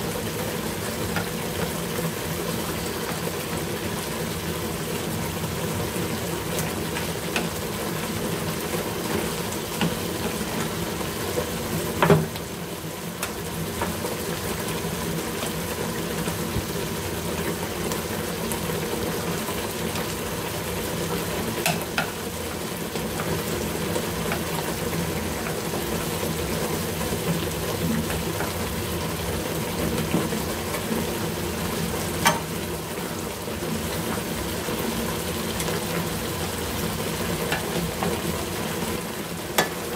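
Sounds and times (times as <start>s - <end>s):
stew sizzling in a pan: 0.0s - 39.9s
chopsticks clicking against pan: 21.6s - 22.1s, 32.2s - 32.5s.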